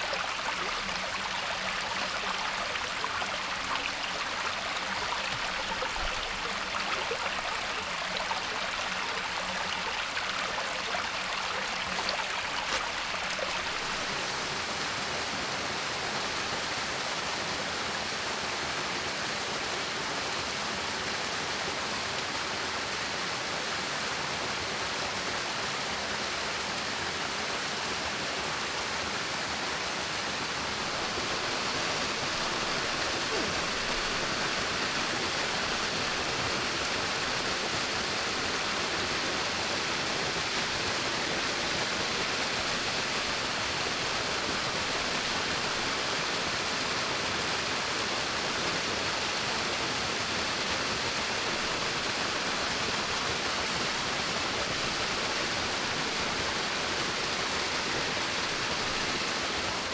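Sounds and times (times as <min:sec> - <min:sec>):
running water rushing: 0:00.0 - 0:18.6, 0:26.8 - 0:59.9.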